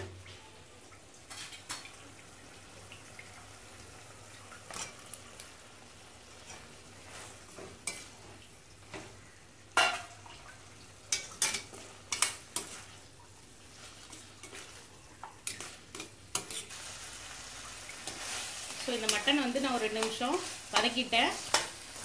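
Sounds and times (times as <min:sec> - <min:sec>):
meat sizzling in a pan: 0:01.3 - 0:22.0
spatula scraping and clacking on pan: 0:06.4 - 0:09.2, 0:11.1 - 0:13.0, 0:13.7 - 0:17.0, 0:17.9 - 0:22.0.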